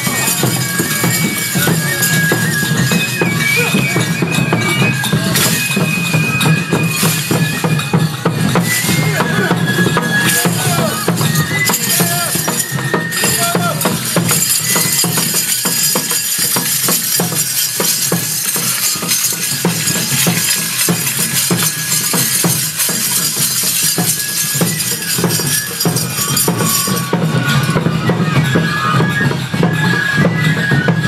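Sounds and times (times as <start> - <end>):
drumming: 0.0 - 31.0
held flute notes: 0.0 - 31.0
metal jingles rattling: 10.2 - 27.2.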